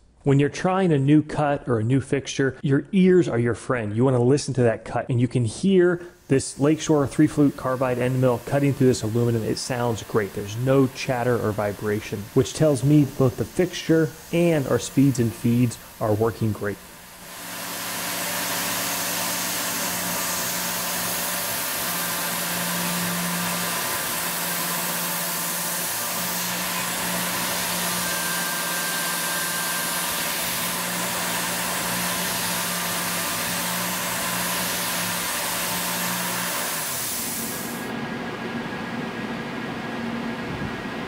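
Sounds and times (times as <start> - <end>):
machine hum: 6.1 - 41.0
coolant mist hissing: 6.2 - 37.9
milling machine cutting metal: 6.6 - 38.0.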